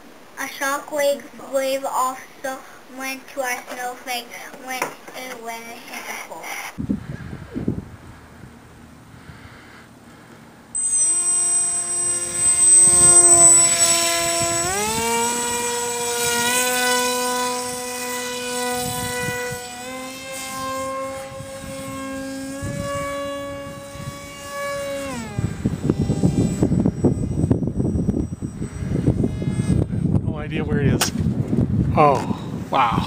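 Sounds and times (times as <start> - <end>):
electric motor and propeller whine: 6.7 - 32.7
wind buffeting microphone: 6.8 - 9.4, 12.0 - 33.0.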